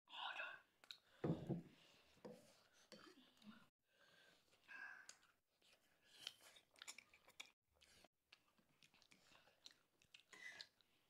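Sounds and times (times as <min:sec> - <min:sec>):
chewing noodles: 0:05.1 - 0:11.0.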